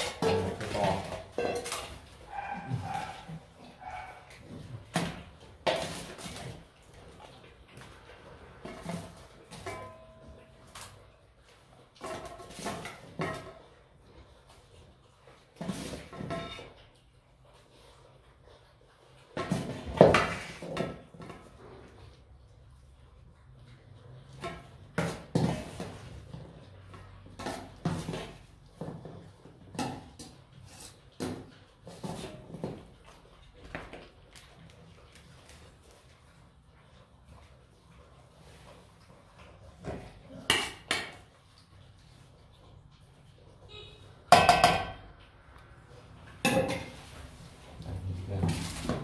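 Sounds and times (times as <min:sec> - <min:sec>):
metal dog bowls clanging: 0:00.0 - 0:06.8, 0:07.9 - 0:14.7, 0:15.4 - 0:17.0, 0:46.0 - 0:49.0.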